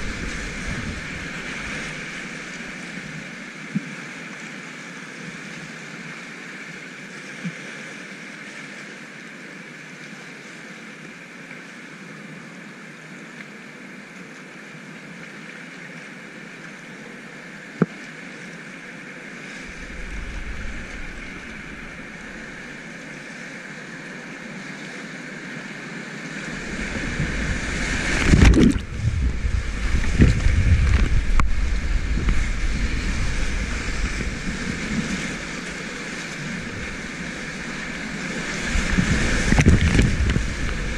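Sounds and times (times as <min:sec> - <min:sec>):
heavy water splashing: 0:00.0 - 0:03.4, 0:19.4 - 0:23.3, 0:26.2 - 0:40.9
whitewater rapids rushing: 0:19.4 - 0:24.6, 0:25.2 - 0:40.9.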